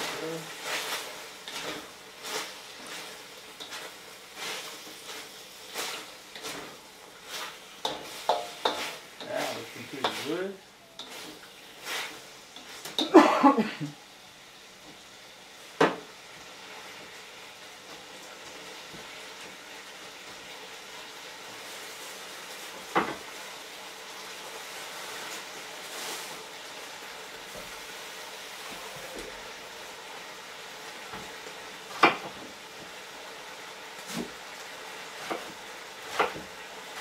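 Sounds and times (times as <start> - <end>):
spatula scraping in wok: 0.0 - 13.2
chicken sizzling in wok: 0.0 - 37.0.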